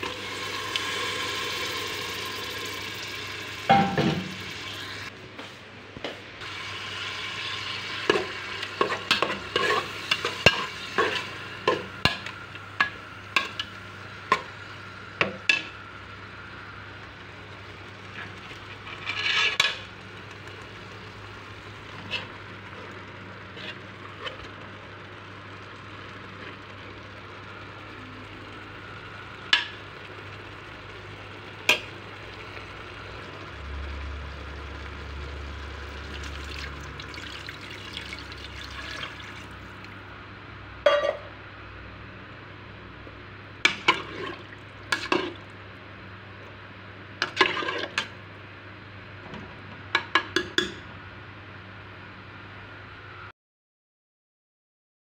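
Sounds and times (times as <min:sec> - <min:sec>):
tomato sauce sizzling: 0:00.0 - 0:05.1, 0:06.4 - 0:40.0.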